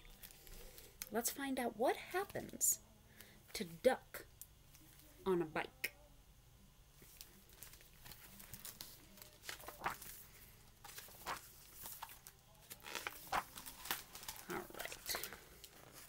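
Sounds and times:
book pages rustling: 0:07.0 - 0:16.0.

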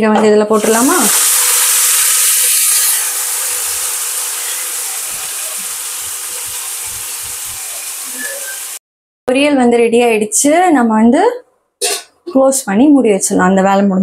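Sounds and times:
food sizzling in hot oil: 0:00.6 - 0:08.8.

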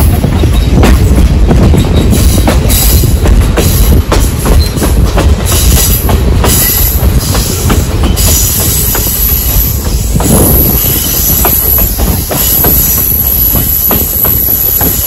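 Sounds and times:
train coaches rumbling: 0:00.0 - 0:15.0
high wheel squeal: 0:08.1 - 0:15.0.

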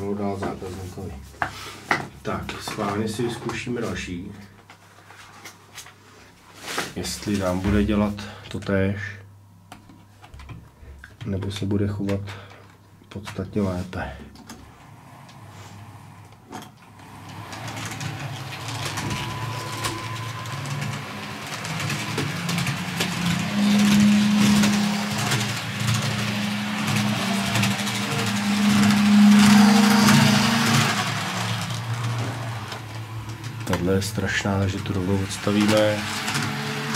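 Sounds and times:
gear drive rattling: 0:17.0 - 0:36.9
model train motor buzzing: 0:17.0 - 0:36.9.

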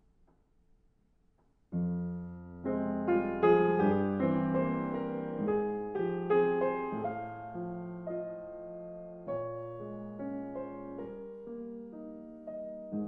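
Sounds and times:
slow piano chords: 0:01.7 - 0:13.0.

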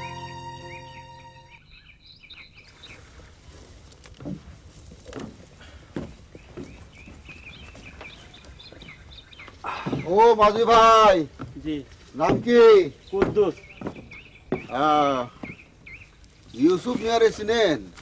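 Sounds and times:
small birds chirping: 0:00.0 - 0:18.0
soft thumps: 0:04.0 - 0:10.5, 0:11.2 - 0:15.8.

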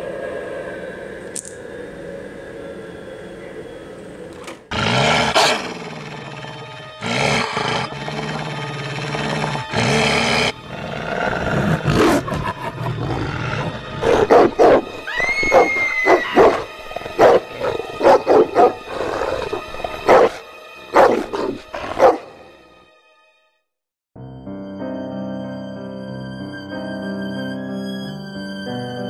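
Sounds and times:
animatronic dog growling: 0:04.7 - 0:14.9, 0:15.5 - 0:22.4.

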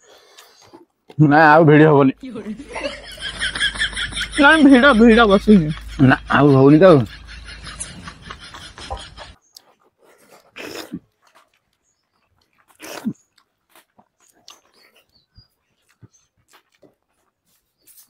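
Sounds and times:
slurping food off fingers: 0:09.5 - 0:11.7, 0:12.4 - 0:15.2.

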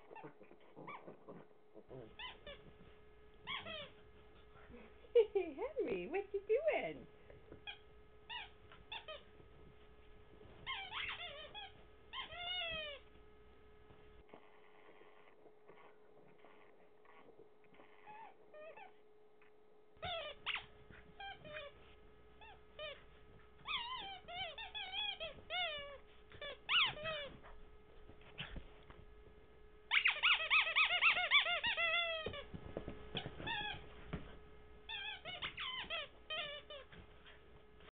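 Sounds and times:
faint steady hum: 0:00.0 - 0:37.9
rubber squeaky toy squeaking: 0:02.1 - 0:02.7, 0:03.4 - 0:03.9, 0:07.6 - 0:09.2, 0:10.6 - 0:13.0, 0:20.0 - 0:21.8, 0:23.6 - 0:27.6, 0:29.9 - 0:32.5, 0:33.1 - 0:33.9, 0:34.9 - 0:37.0
soft rustling: 0:02.1 - 0:14.5, 0:20.3 - 0:37.9.

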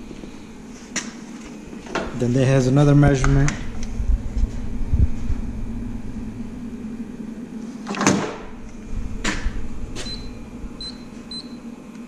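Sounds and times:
high electronic keypad beeps: 0:10.0 - 0:11.6.

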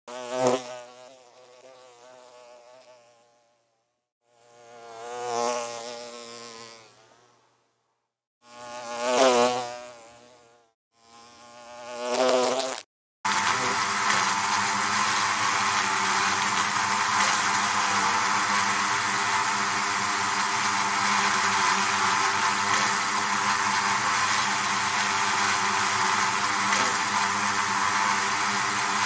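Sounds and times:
bee buzzing in flight: 0:00.1 - 0:07.7, 0:08.4 - 0:29.0
dense buzzing hum: 0:08.4 - 0:29.0.

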